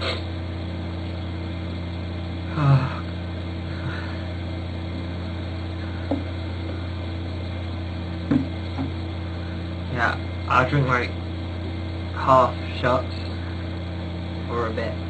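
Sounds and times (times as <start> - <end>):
low electrical hum: 0.0 - 15.0
man groaning: 2.4 - 3.2.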